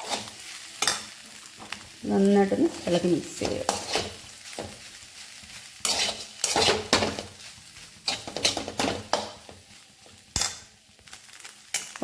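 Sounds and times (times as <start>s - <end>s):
spatula scraping metal pan: 0.0s - 1.0s, 3.4s - 4.8s, 5.8s - 7.4s, 8.0s - 9.6s.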